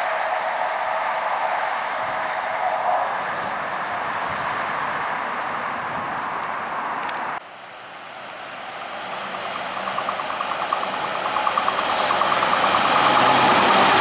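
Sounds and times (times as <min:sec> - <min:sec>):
diesel locomotive approaching: 0:00.0 - 0:14.0
fast rhythmic ticking: 0:09.2 - 0:14.0.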